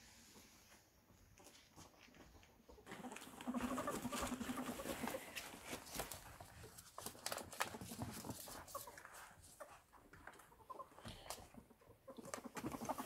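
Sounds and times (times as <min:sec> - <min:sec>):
claws scrabbling on floor: 0:01.4 - 0:10.5.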